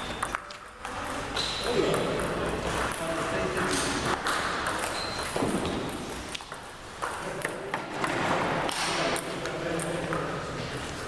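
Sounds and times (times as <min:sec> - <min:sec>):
ping-pong ball clicking: 0:00.0 - 0:03.0, 0:03.6 - 0:07.6.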